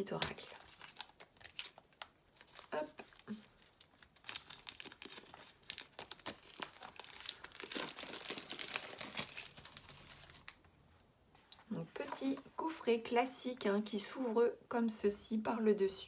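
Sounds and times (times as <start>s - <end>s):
plastic shrink-wrap tearing and crinkling: 0.1s - 10.6s.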